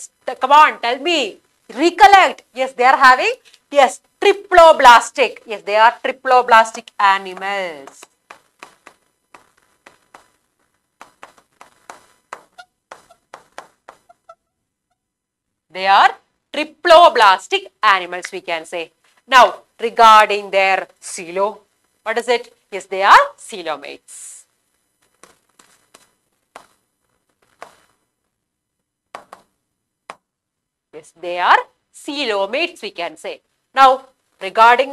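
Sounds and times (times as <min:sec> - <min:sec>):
pen scratching and tapping on glass: 0:07.2 - 0:10.4, 0:11.0 - 0:14.4, 0:25.0 - 0:28.0, 0:29.1 - 0:29.5
faint pen squeak: 0:12.5 - 0:13.3, 0:14.0 - 0:14.5.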